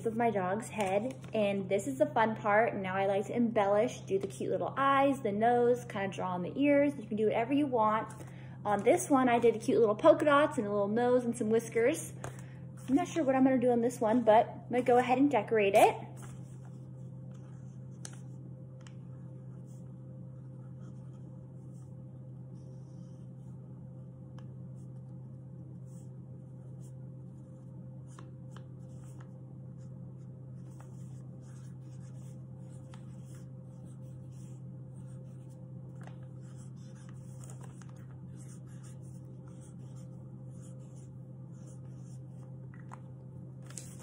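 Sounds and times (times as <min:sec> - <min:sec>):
low hum: 0:00.0 - 0:44.0
pen scratching on paper: 0:30.6 - 0:35.6, 0:36.3 - 0:42.4.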